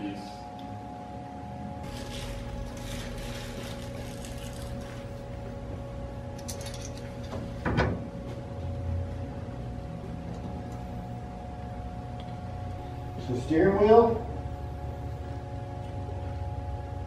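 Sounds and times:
background hum: 0.0s - 17.0s.

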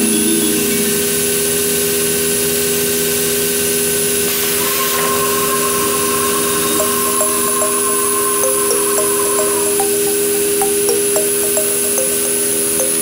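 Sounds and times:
steady tone: 4.0s - 13.0s.

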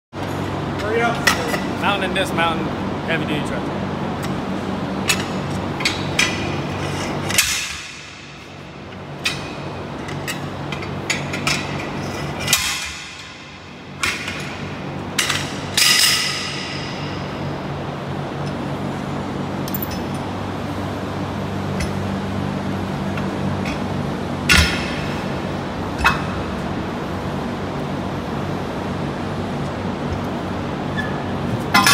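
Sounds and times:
low shop hum: 0.1s - 31.9s.

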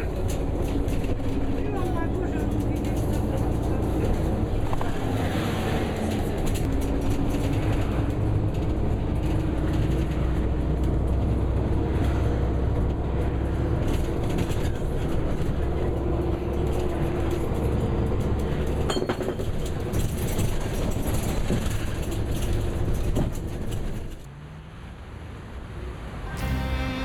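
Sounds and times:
vehicle interior rumble: 0.0s - 24.4s.

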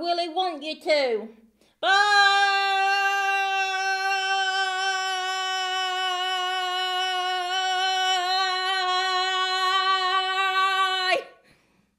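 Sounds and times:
woman singing a long note: 1.8s - 11.3s.

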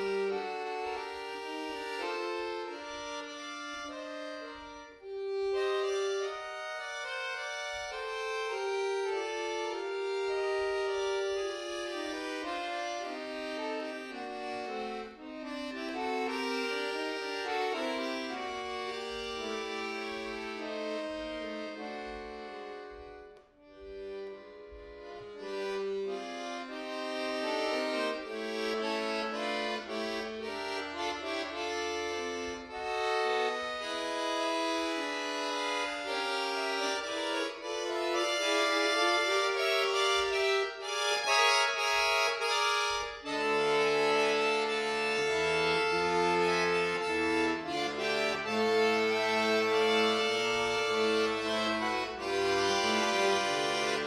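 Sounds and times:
button accordion playing: 0.0s - 54.0s
deep accordion bass notes: 0.0s - 54.0s.

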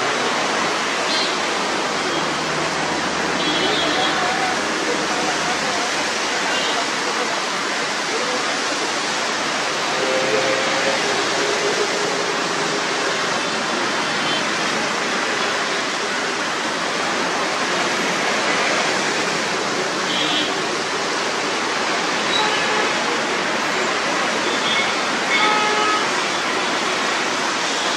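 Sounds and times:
tyres hissing on wet road: 0.0s - 27.9s
vehicle engines running: 8.8s - 20.0s.

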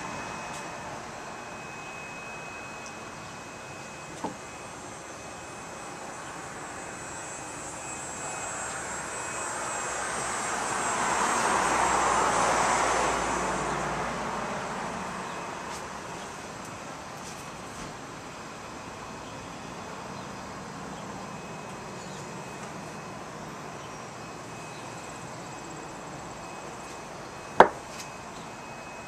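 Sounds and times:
airplane passing: 0.0s - 15.6s.

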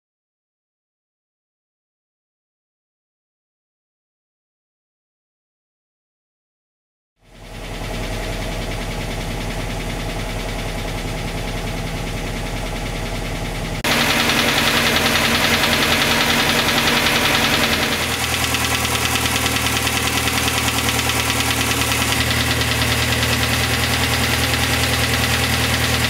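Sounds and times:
car engine idling: 7.2s - 26.0s.

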